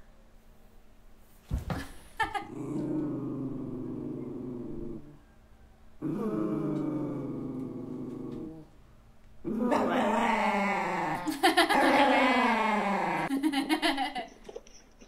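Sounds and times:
woman howling: 0:09.7 - 0:13.3.

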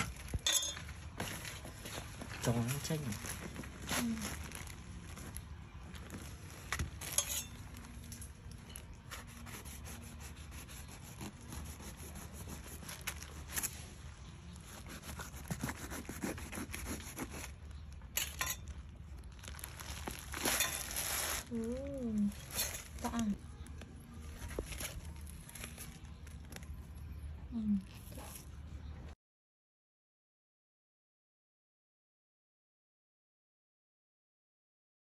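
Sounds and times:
knife cutting fruit rind: 0:09.0 - 0:13.7, 0:14.5 - 0:17.6.

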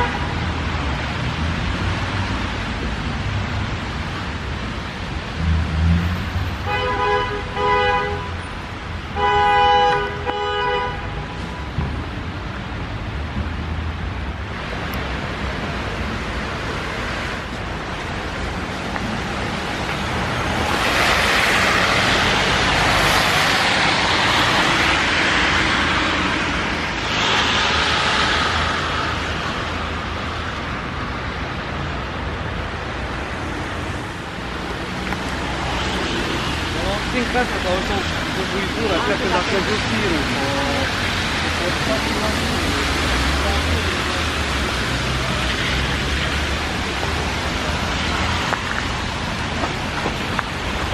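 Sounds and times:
street traffic rumble: 0:00.0 - 0:50.9
car horn honking: 0:06.6 - 0:08.4, 0:09.2 - 0:11.2
loud hiss: 0:26.9 - 0:29.2.

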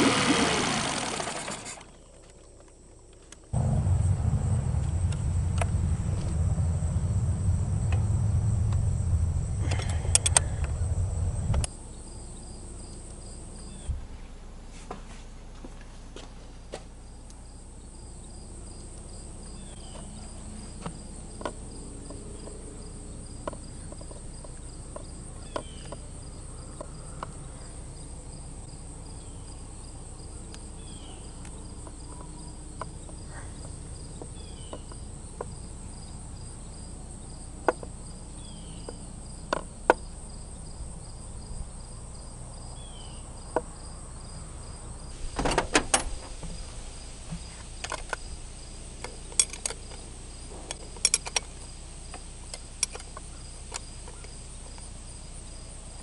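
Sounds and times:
small metal clicks and knocks: 0:49.0 - 0:54.4.

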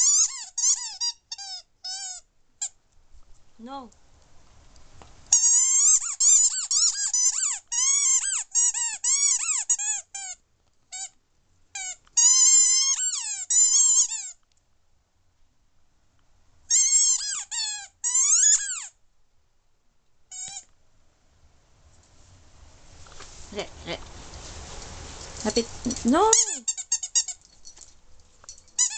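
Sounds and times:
squeaky toy squeaking: 0:00.0 - 0:02.8, 0:05.3 - 0:14.4, 0:16.7 - 0:19.0, 0:20.3 - 0:20.7, 0:25.4 - 0:27.8, 0:28.5 - 0:28.9.

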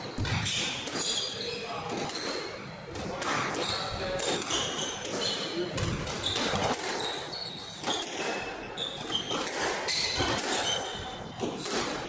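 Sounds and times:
shoes squeaking on wooden floor: 0:06.1 - 0:11.2
squash ball smacks: 0:09.0 - 0:12.0.

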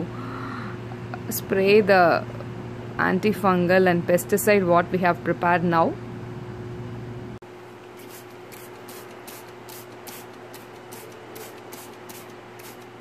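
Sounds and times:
faint steady hum: 0:00.0 - 0:13.0
spray bottle squirts: 0:07.9 - 0:13.0.

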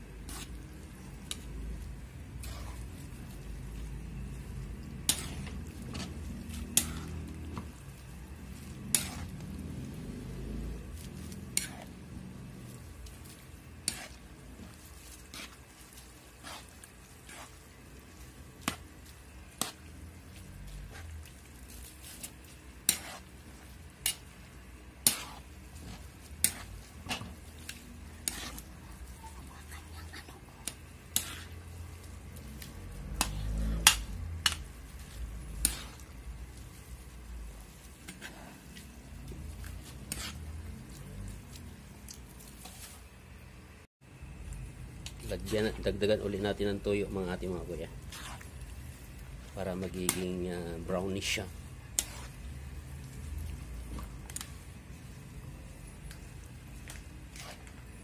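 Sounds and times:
metal spatula scraping a wok: 0:00.2 - 0:00.6, 0:02.3 - 0:03.8, 0:04.8 - 0:07.8, 0:08.4 - 0:10.0, 0:10.7 - 0:12.1, 0:13.0 - 0:18.9, 0:21.7 - 0:24.3, 0:25.0 - 0:29.4, 0:31.1 - 0:36.2, 0:38.0 - 0:41.0, 0:47.7 - 0:49.2, 0:49.8 - 0:52.9, 0:56.8 - 0:58.0.

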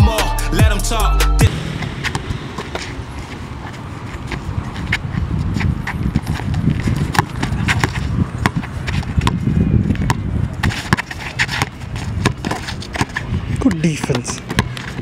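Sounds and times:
basketball dribbling on bricks: 0:04.2 - 0:15.0.

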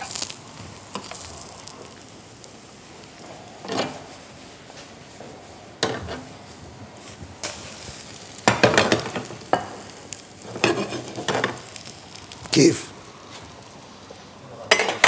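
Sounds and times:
food sizzling in a pan: 0:00.0 - 0:15.0
utensil stirring and scraping pan: 0:10.4 - 0:11.6.

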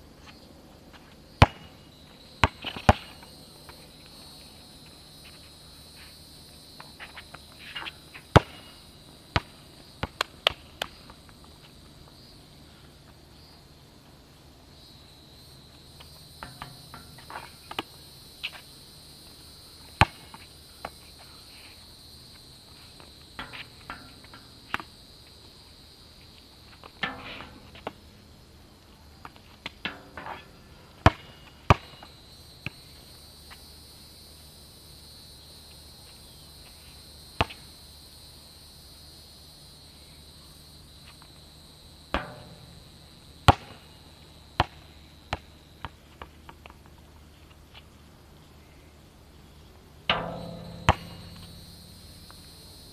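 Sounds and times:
insect chorus: 0:00.0 - 0:52.9
basketball bouncing on asphalt: 0:02.4 - 0:03.3, 0:16.0 - 0:18.6, 0:31.0 - 0:32.8, 0:42.2 - 0:43.9, 0:44.6 - 0:46.8, 0:50.1 - 0:52.5
ball striking hoop: 0:42.2 - 0:43.8, 0:50.1 - 0:52.6.

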